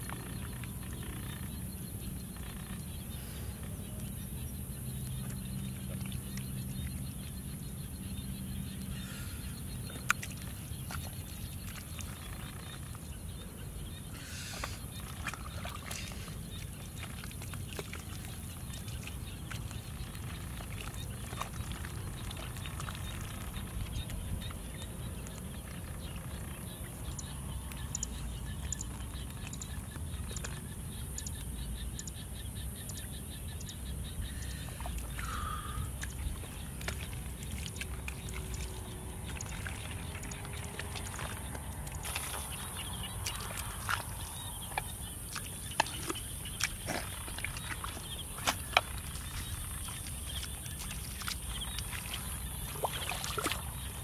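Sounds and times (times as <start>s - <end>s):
hands squelching through wet mud: 8.1s - 30.7s, 34.1s - 54.0s.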